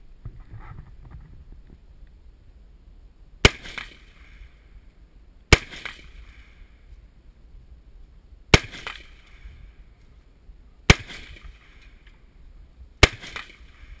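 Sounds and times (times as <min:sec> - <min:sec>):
rifle shots with echo: 0:03.4 - 0:04.5, 0:05.5 - 0:06.6, 0:08.5 - 0:09.6, 0:10.9 - 0:12.0, 0:13.0 - 0:14.0.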